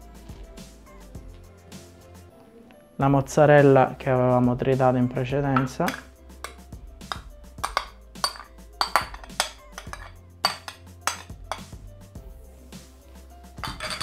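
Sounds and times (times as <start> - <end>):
soft background music: 0.0 - 14.0
taps and clinks on steel bowl: 5.6 - 11.7, 13.6 - 14.0.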